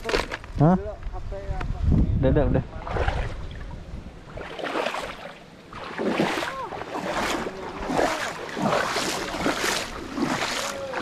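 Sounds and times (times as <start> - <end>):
water sloshing and splashing: 2.7 - 11.0.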